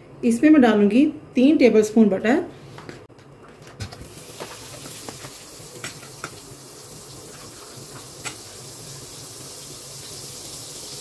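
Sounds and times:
butter sizzling in a frying pan: 4.1s - 11.0s.

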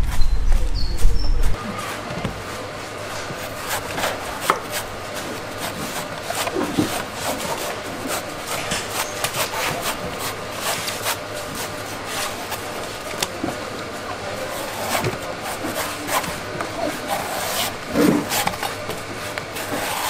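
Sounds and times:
knife chopping coconut husk: 3.4s - 13.6s.

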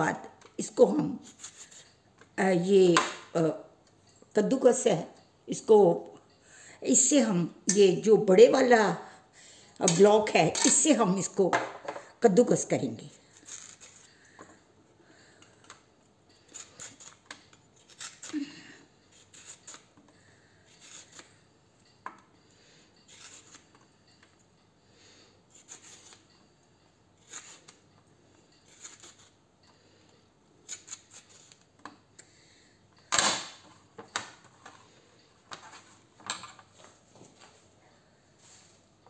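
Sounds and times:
peeler scraping radish: 0.6s - 1.9s, 13.2s - 14.1s, 16.4s - 20.0s, 20.7s - 21.4s, 23.1s - 23.8s, 25.5s - 26.3s, 27.2s - 27.8s, 28.6s - 29.4s, 30.6s - 31.7s.

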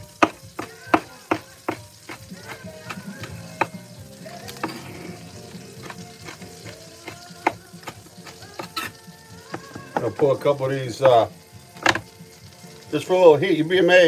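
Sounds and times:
pan sizzling: 0.0s - 14.0s
knife chopping on cutting board: 0.2s - 3.8s, 5.8s - 10.2s, 11.8s - 12.0s.

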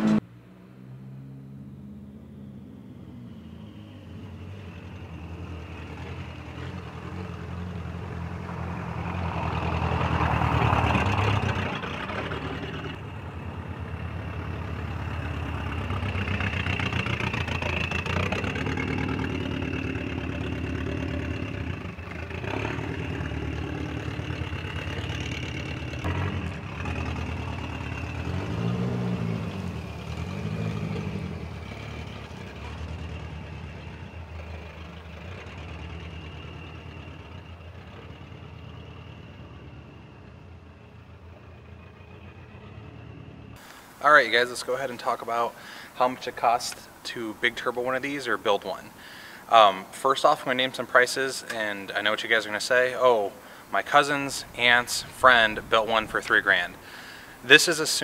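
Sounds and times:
short engine revs: 0.0s - 43.7s
turbocharged car engine driving: 0.0s - 58.0s.

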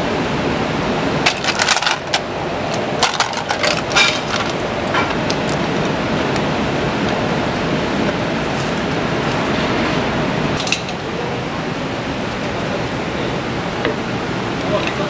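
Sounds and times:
gas burner roar: 0.0s - 15.0s
clam shells clattering in pot: 1.3s - 2.2s, 3.0s - 5.6s.

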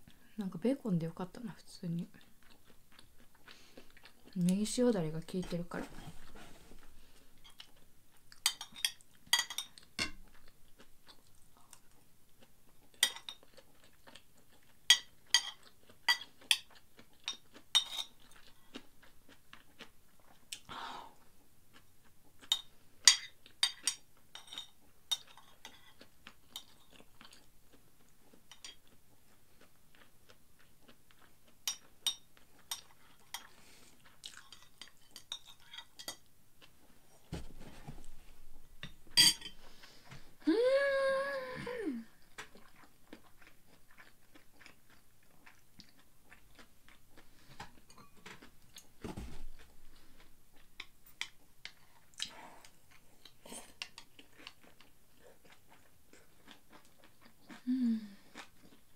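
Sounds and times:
quiet chewing: 1.9s - 40.5s, 41.9s - 58.9s
metal spoon clinking on plate: 39.2s - 39.6s.

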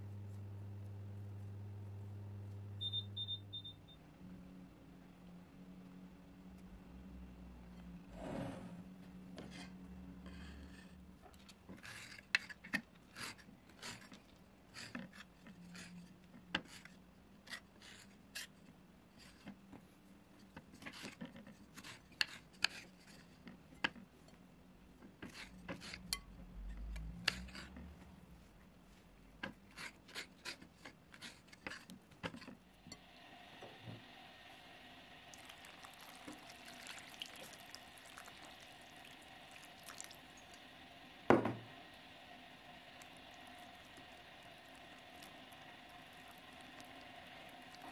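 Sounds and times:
knife scraping fruit peel: 20.8s - 23.4s, 29.5s - 32.5s.

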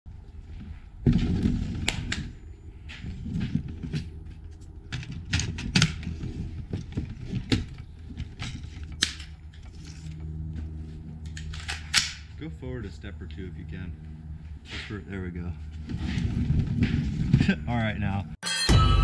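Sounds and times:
rifle metallic clicks and clatter: 11.2s - 12.3s.

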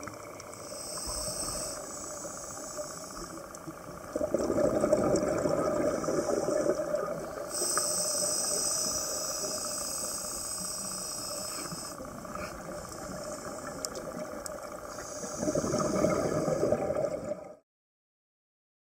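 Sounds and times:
regulator inhalation hiss: 0.5s - 3.5s, 5.8s - 13.9s, 14.8s - 16.8s
regulator exhaust bubbles underwater: 1.8s - 8.9s, 11.8s - 17.6s.

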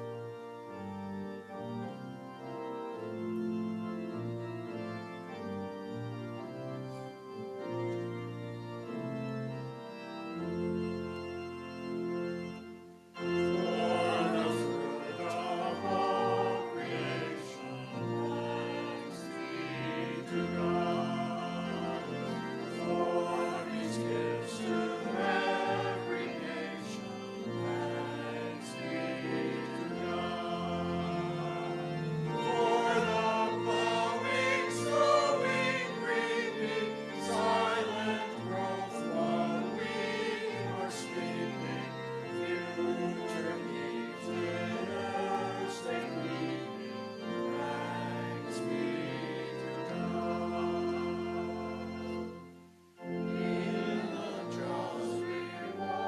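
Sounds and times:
organ accompaniment: 0.0s - 56.0s
vocal group singing in parts: 13.6s - 46.8s, 47.5s - 51.8s, 53.3s - 56.0s.

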